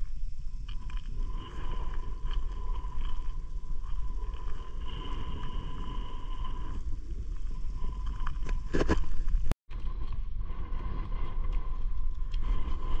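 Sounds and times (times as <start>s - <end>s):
wind buffeting a microphone: 9.7s - 13.0s.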